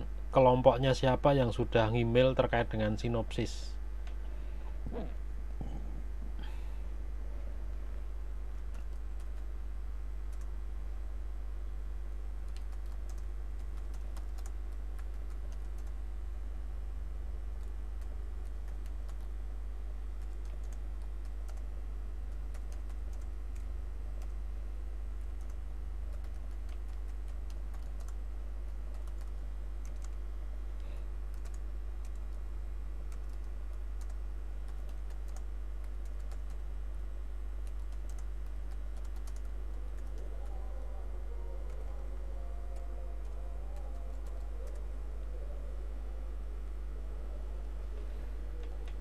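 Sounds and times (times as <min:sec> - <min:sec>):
steady low hum: 0:00.0 - 0:49.0.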